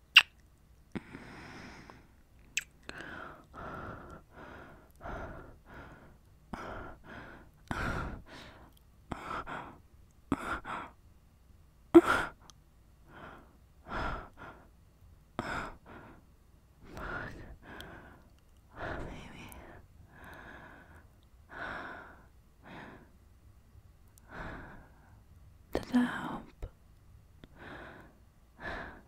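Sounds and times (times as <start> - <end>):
woman breathing heavily and sighing: 0.9 - 2.2, 2.8 - 11.0, 11.9 - 14.7, 15.4 - 23.2, 24.2 - 25.2, 27.4 - 29.0.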